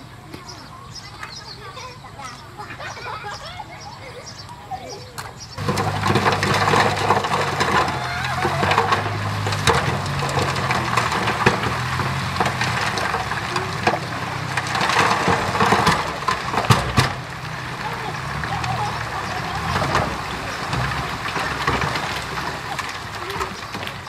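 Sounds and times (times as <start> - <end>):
bulldozer diesel engine: 2.6 - 24.0
sharp cracks and knocks: 5.2 - 24.0.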